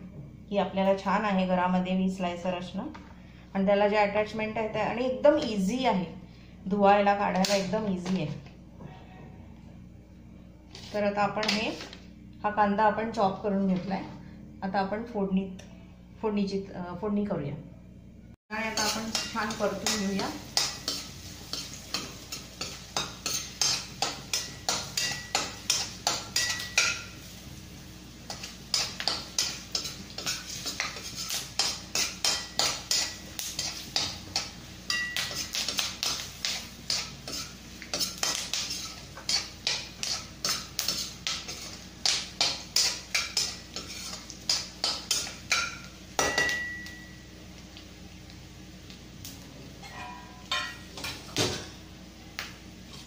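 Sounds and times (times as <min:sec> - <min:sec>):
peanuts frying in oil: 0:18.5 - 0:49.8
metal spoon scraping a pan: 0:18.6 - 0:27.2, 0:28.3 - 0:47.0, 0:49.8 - 0:50.8
ringing metal clank: 0:49.8 - 0:50.8.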